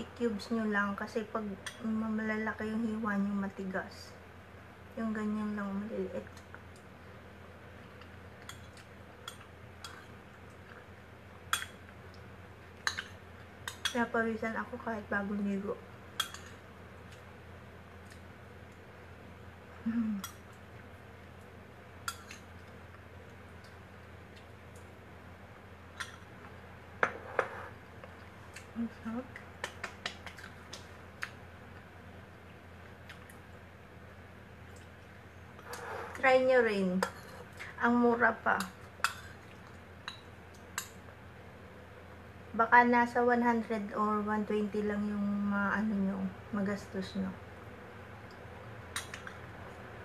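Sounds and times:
eating clicks and smacks: 29.6 - 31.4, 48.3 - 49.5.

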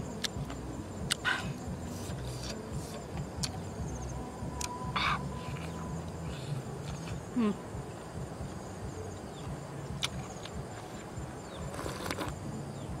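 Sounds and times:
insects buzzing and chirping: 0.0 - 13.0
mouth clicks and slurps eating: 11.6 - 12.4.

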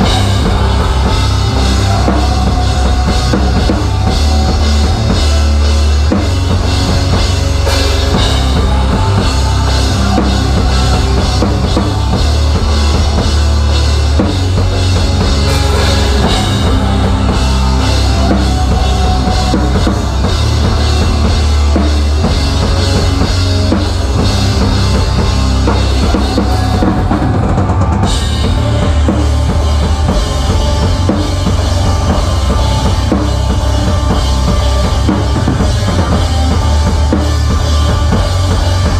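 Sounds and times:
cymbals: 0.0 - 38.9
rock band playing live: 0.0 - 38.9.

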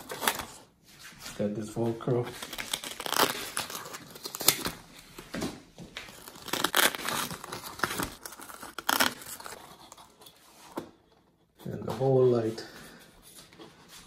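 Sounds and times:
lining crinkling: 0.0 - 12.1
velcro straps peeling apart: 2.4 - 4.8, 6.1 - 10.0.

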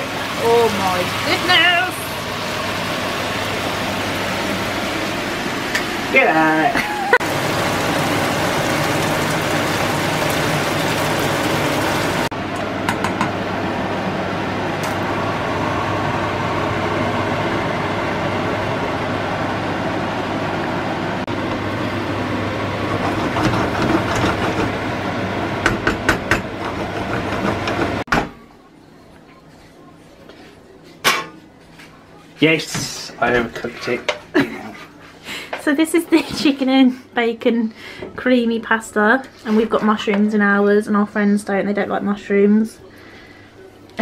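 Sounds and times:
food sizzling in a wok: 0.0 - 12.3
wooden spoon scraping a pan: 33.4 - 35.2.

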